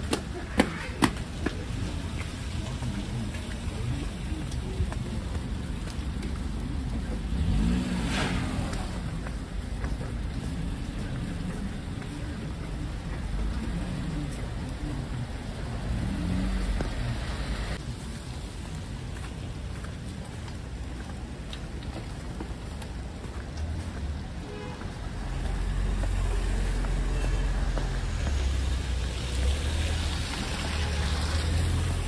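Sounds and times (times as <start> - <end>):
car passing close: 7.2 - 11.9, 13.6 - 17.8, 25.2 - 32.0.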